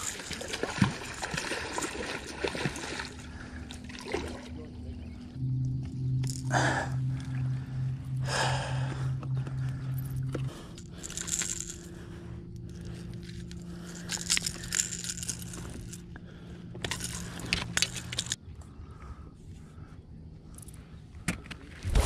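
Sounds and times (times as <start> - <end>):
crackling and scraping: 9.0 - 18.4.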